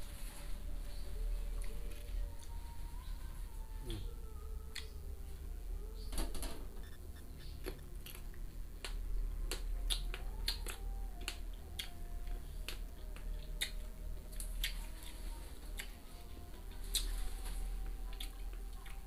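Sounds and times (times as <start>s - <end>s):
crunchy fruit chewing: 7.3s - 16.0s, 16.7s - 19.0s.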